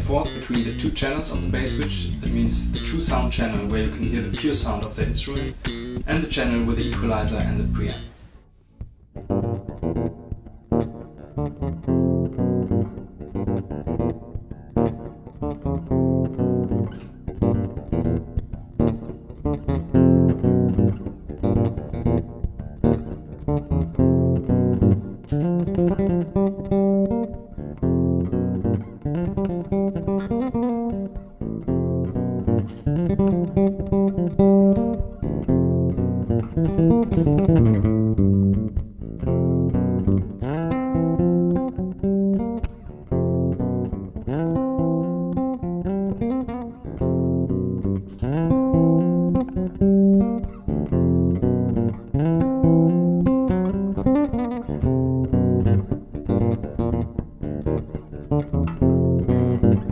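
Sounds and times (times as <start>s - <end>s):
electric bass plucked notes: 0.0s - 8.2s, 8.8s - 59.9s.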